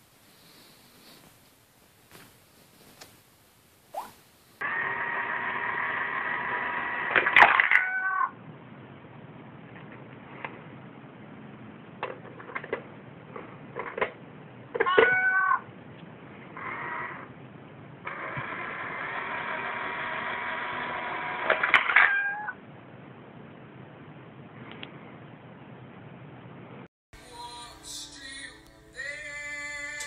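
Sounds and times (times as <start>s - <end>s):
cat meowing: 7.7s - 8.3s, 14.8s - 15.6s, 21.9s - 22.6s.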